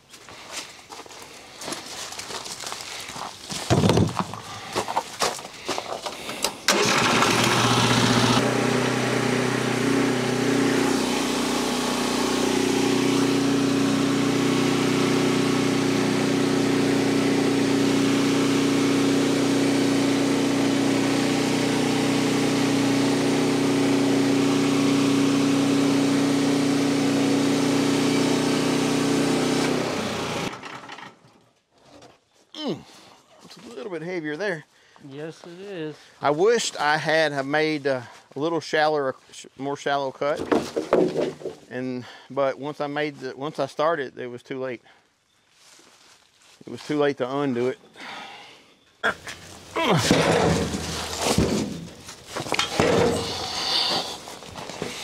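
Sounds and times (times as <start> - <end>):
engine starting and running: 6.0 - 31.2, 49.4 - 55.0
band saw cutting log: 6.7 - 30.8, 50.0 - 55.0.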